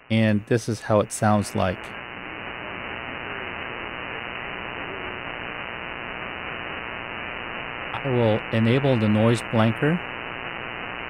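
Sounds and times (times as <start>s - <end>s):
radio static: 0.0s - 11.0s.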